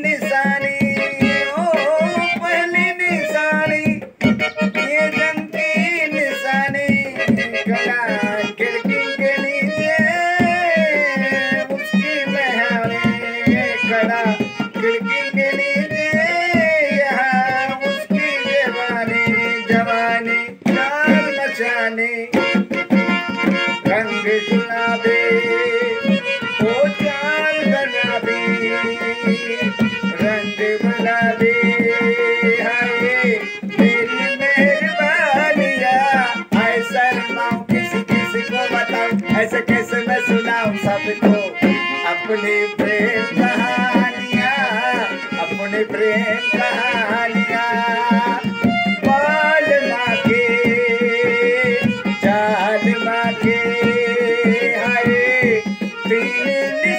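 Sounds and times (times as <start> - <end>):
harmonium melody: 0.0 - 56.9
tabla rhythm: 0.0 - 56.9.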